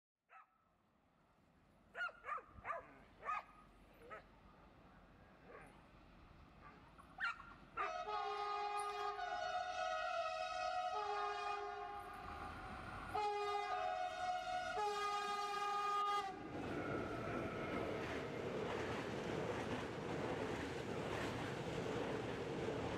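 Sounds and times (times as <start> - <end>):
dog barking: 0.3 - 0.5, 1.9 - 4.3, 5.4 - 5.8, 6.6 - 8.0
locomotive horn blast: 7.8 - 17.8.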